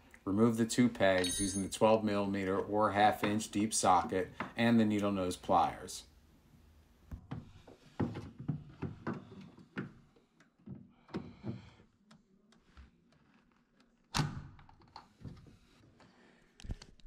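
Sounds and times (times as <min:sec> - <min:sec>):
tools clicking and knocking: 0:01.2 - 0:01.8.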